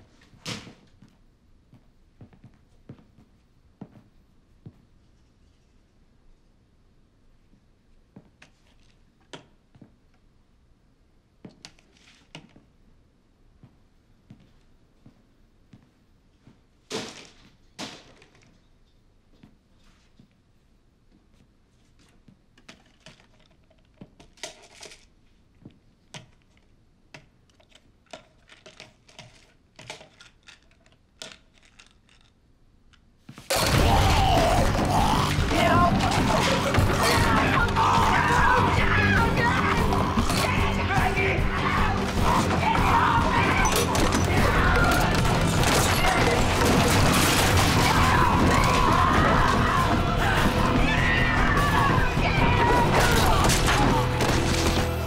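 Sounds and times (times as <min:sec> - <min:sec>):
shelving crashing and smashing: 0:16.9 - 0:18.5, 0:33.5 - 0:55.0
boxes and bottles clicking and tapping: 0:26.1 - 0:32.3
woman screaming: 0:33.6 - 0:45.2, 0:47.7 - 0:54.1.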